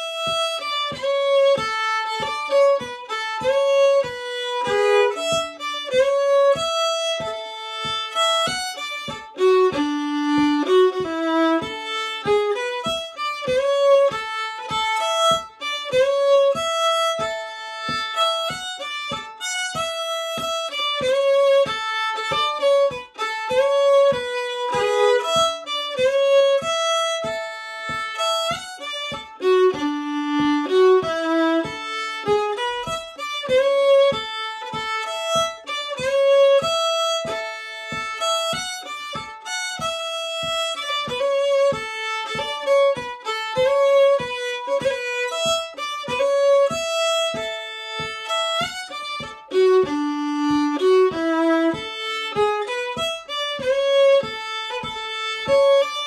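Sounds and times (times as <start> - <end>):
soft steady tapping: 0.0 - 56.0
solo fiddle playing: 0.0 - 56.0.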